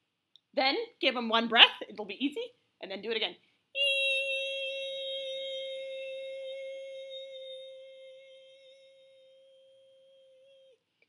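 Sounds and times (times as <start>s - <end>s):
person humming: 3.8s - 10.8s.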